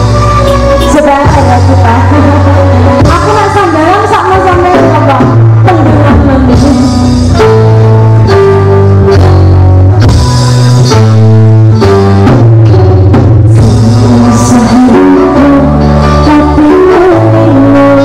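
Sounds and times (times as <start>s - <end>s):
bass line: 0.0s - 18.0s
electronic keyboard chords: 0.0s - 18.0s
woman singing: 0.4s - 7.4s, 13.6s - 18.0s.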